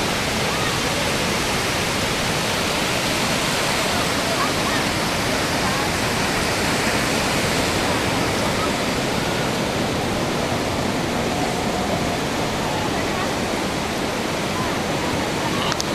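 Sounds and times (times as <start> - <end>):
waves breaking on beach: 0.0 - 15.9.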